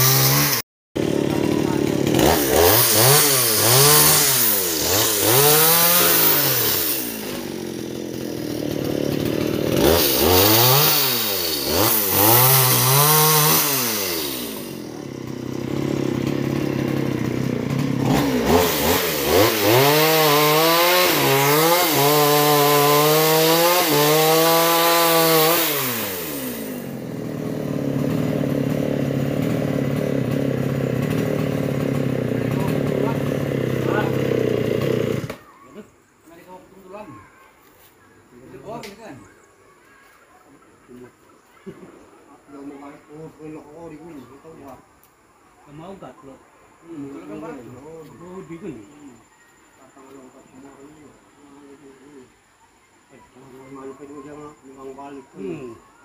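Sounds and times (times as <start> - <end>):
chainsaw revving and idling: 0.0 - 35.5.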